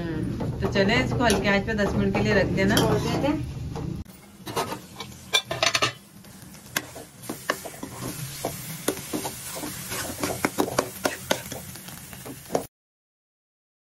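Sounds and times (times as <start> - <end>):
soft sizzle: 0.0 - 12.7
metal spoon scraping pot: 4.4 - 6.0, 6.8 - 11.6.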